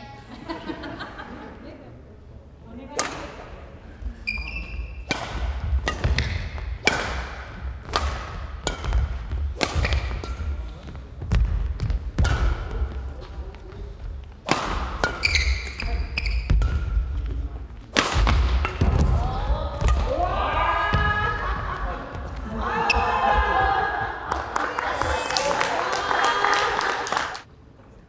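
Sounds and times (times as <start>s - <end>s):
racket hitting shuttlecock: 2.9s - 3.5s, 4.3s - 13.2s, 14.0s - 21.2s
shoes squeaking: 4.1s - 17.9s, 22.1s - 23.2s.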